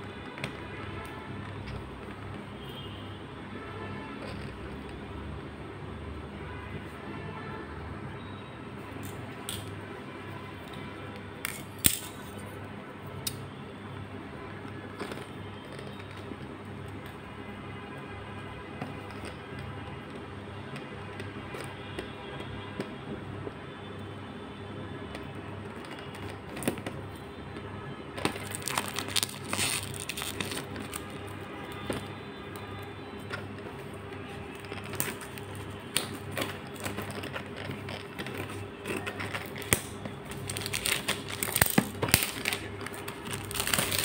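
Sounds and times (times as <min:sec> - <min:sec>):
shrink wrap crinkling: 0:28.2 - 0:44.0.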